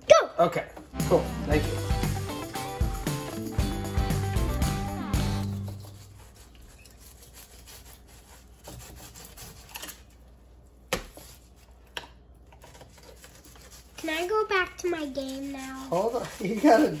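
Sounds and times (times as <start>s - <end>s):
knife cutting through fish: 5.5s - 10.2s.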